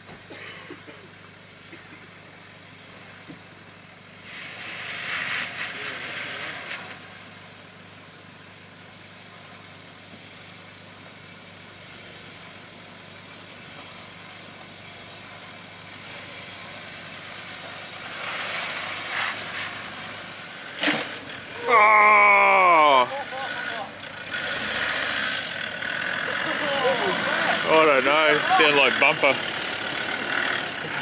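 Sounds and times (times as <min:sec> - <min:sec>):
engine running at low revs: 0:15.3 - 0:31.0
tyres grinding over rock: 0:18.2 - 0:31.0.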